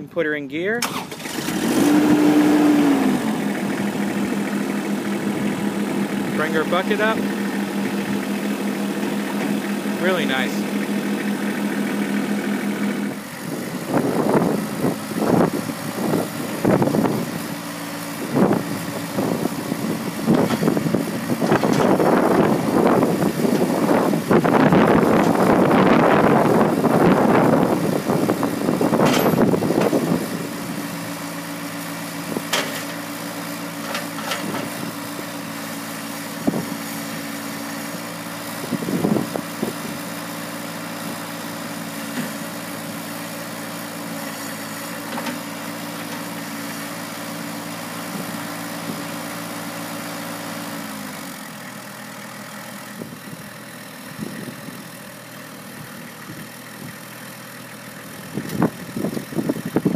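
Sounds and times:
tractor diesel engine running: 0.0 - 59.9
wind buffeting microphone: 13.4 - 17.4, 18.2 - 30.8, 38.7 - 40.0.

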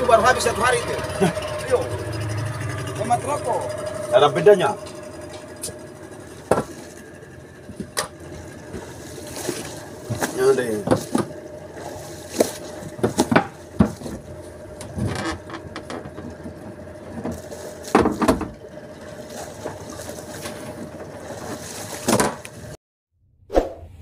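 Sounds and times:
boat knocking: 0.0 - 22.8
faint engine hum: 0.0 - 22.8
water splashing: 8.1 - 14.5, 18.9 - 22.7.

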